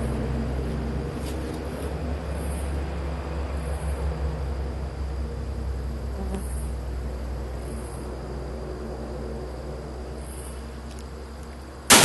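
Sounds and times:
insects chirping: 0:00.0 - 0:12.0.

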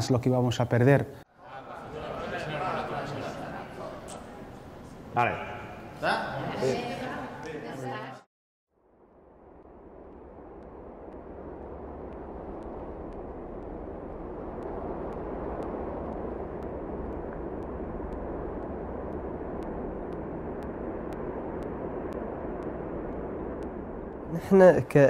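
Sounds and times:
steady rushing noise: 0:08.8 - 0:25.0
faint regular ticks: 0:09.5 - 0:24.4.

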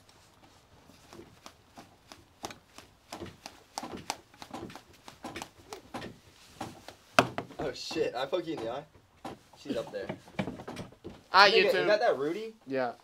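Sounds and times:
handling taps and knocks: 0:00.9 - 0:11.3.

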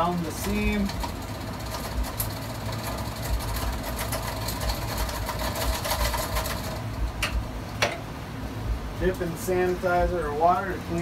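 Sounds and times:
can seamer motor humming: 0:00.0 - 0:07.8.

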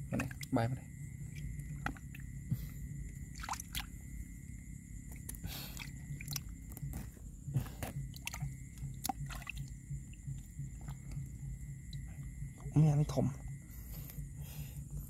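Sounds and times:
wet mud squelching: 0:05.2 - 0:09.7.

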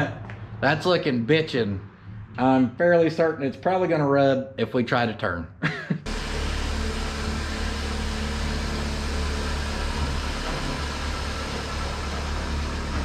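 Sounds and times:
car engine humming: 0:06.1 - 0:13.0.

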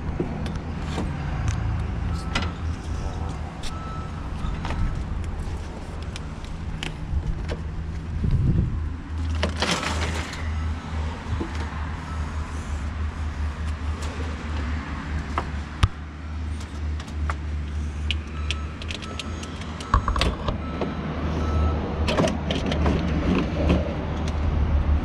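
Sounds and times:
steady low rumble: 0:00.0 - 0:16.7.

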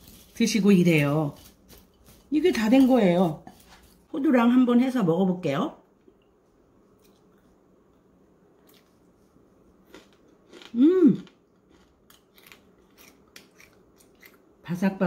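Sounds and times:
person chewing crunchy food: 0:08.6 - 0:14.6
person humming mmm: 0:10.7 - 0:11.3.

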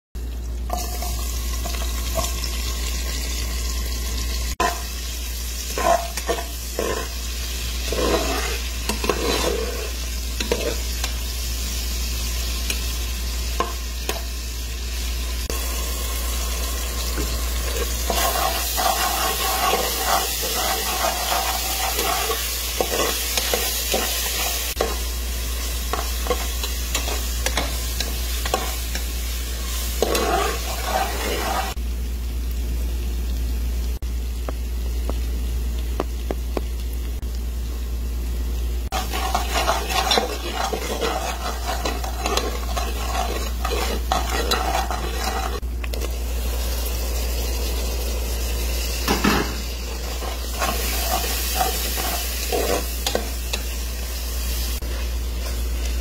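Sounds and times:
onions sizzling in oil: 0:00.2 - 0:56.0
spatula scraping pan: 0:05.7 - 0:07.2, 0:07.8 - 0:11.1, 0:17.2 - 0:25.0, 0:25.8 - 0:29.1, 0:29.7 - 0:31.8, 0:38.9 - 0:45.6, 0:49.1 - 0:53.6.

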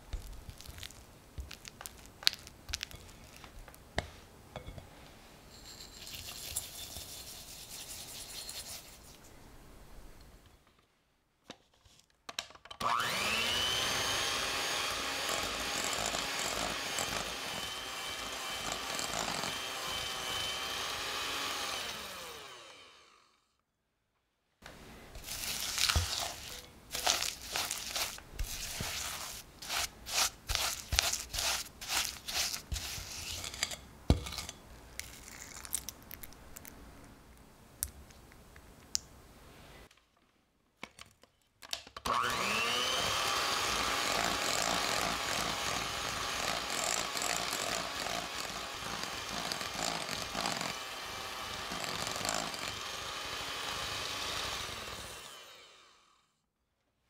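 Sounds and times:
spatula scraping a glass bowl: 0:05.5 - 0:09.1, 0:25.2 - 0:34.6
electric hand mixer whining: 0:12.8 - 0:23.3, 0:42.1 - 0:56.1.

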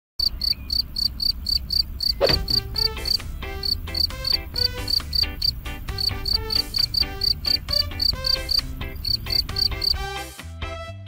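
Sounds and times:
cricket chirping: 0:00.2 - 0:10.0
light music with plucked notes: 0:02.2 - 0:11.0.

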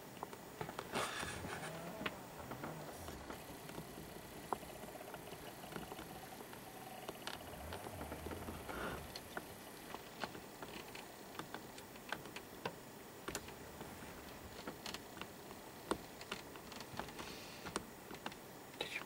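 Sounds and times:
low background hiss: 0:00.0 - 0:19.0
small clicks and ticks: 0:01.6 - 0:19.0.

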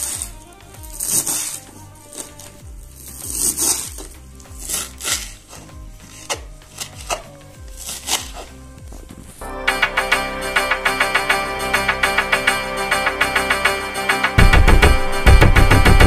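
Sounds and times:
background music with steady beat: 0:00.0 - 0:16.0.

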